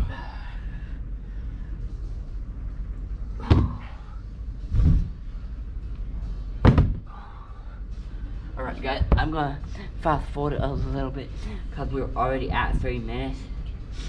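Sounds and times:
dumbbells thudding on rubber floor: 3.4 - 3.9, 6.6 - 7.1.

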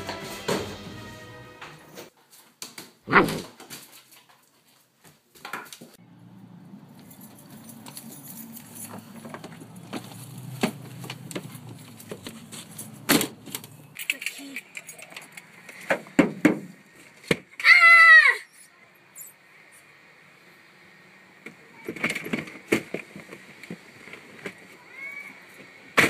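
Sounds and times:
dog barking: 3.1 - 3.4.

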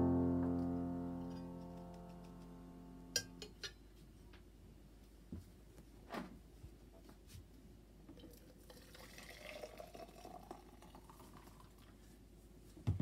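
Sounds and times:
water pouring into kettle: 8.2 - 11.9.

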